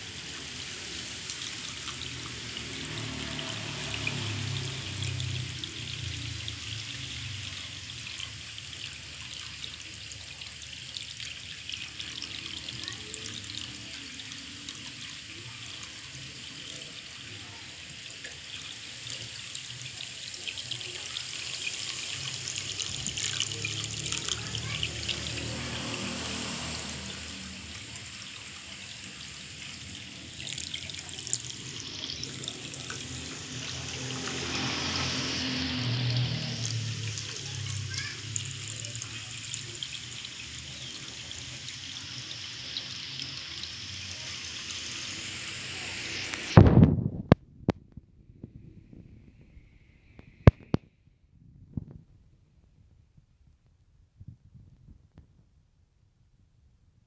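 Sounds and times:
water trickling into pond: 0:00.0 - 0:47.4, 0:49.7 - 0:51.0.

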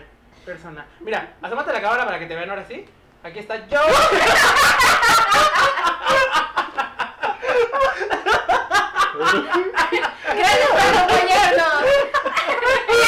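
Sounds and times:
man and woman laughing: 0:03.9 - 0:13.0.

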